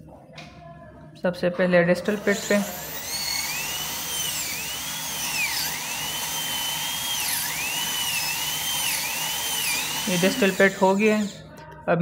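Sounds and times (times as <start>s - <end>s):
dental drill whining: 2.0s - 11.5s.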